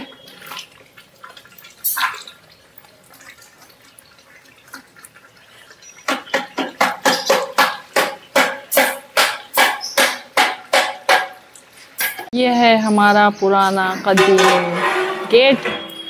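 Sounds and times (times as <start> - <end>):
cream trickling into a pot: 0.1 - 6.3
metal ladle scraping a pot: 14.0 - 16.0.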